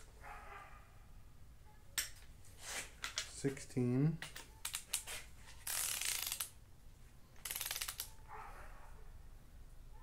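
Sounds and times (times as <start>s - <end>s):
torque wrench ratchet clicking: 5.7s - 6.5s, 7.4s - 8.1s.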